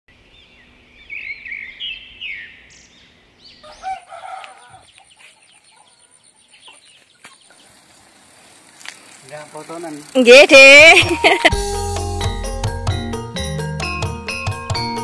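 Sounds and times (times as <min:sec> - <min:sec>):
small birds chirping: 0:00.1 - 0:10.2
rooster crowing: 0:03.6 - 0:04.9.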